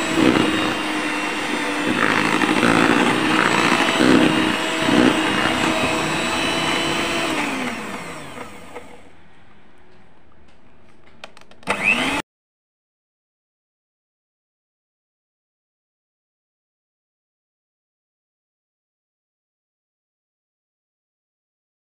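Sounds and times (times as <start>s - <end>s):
electric hand mixer running: 0.0s - 9.0s, 11.6s - 12.2s.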